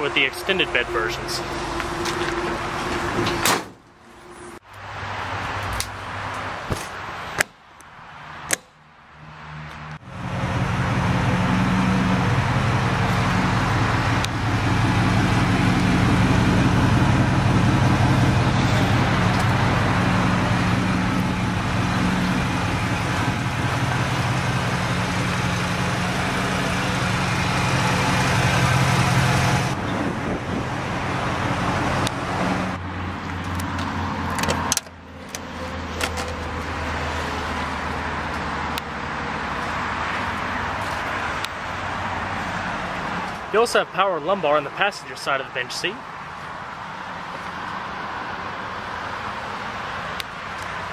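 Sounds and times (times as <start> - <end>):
motor vehicle engine running: 10.0 - 41.5.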